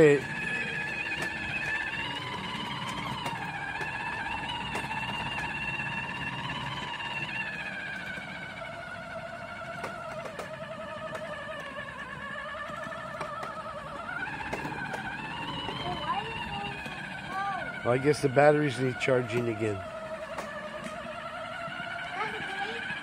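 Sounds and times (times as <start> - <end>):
small wheels ticking: 0.0 - 23.0
toy electric motor whining: 0.0 - 23.0.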